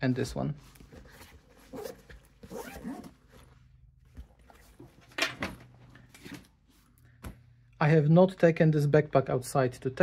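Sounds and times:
bag fabric rustling: 0:00.6 - 0:05.1
backpack zipper: 0:01.6 - 0:03.5.

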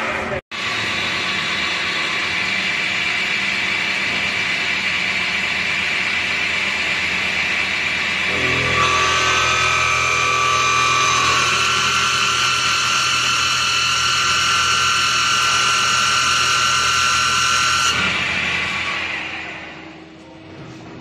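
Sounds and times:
lathe motor whine: 0:00.6 - 0:20.3
low machine hum: 0:06.3 - 0:21.0.

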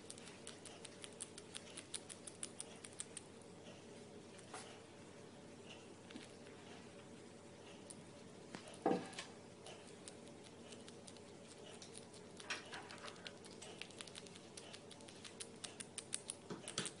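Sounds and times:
bat chewing with wet clicks: 0:00.0 - 0:03.3, 0:09.6 - 0:17.0.

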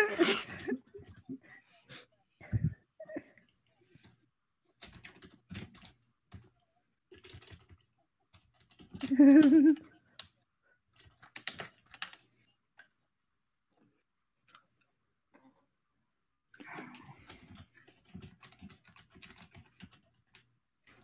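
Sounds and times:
keyboard typing: 0:03.9 - 0:13.0, 0:16.7 - 0:21.0.

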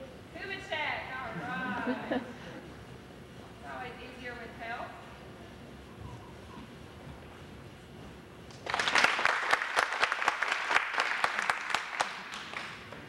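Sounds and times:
small audience clapping: 0:08.5 - 0:13.0.

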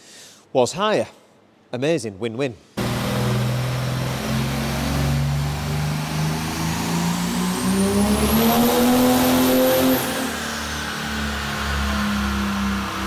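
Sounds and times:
diesel engine revving: 0:02.8 - 0:13.0
high turbo whine: 0:02.8 - 0:13.0.

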